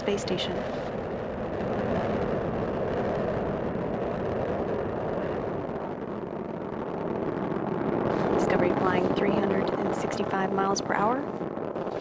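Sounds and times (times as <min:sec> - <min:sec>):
rocket exhaust rumble: 0:00.0 - 0:12.0.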